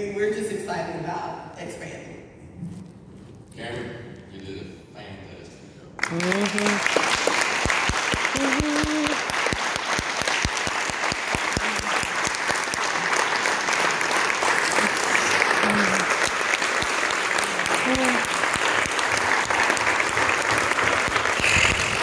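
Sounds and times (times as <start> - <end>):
audience applauding: 6.0 - 22.0.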